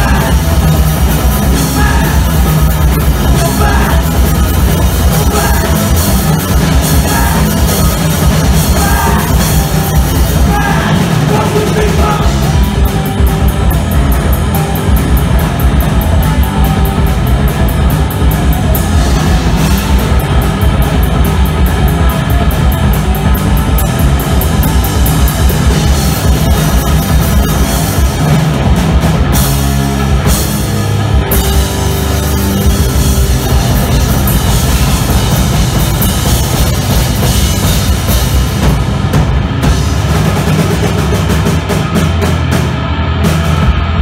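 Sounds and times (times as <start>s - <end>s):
fast cymbal beat: 0.0s - 38.9s
punk rock band playing live: 0.0s - 44.0s.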